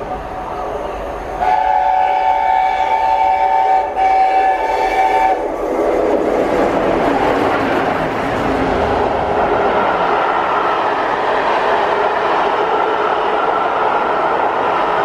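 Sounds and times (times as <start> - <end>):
rush of train passing: 0.0 - 15.0
steam locomotive chime whistle: 1.4 - 5.4.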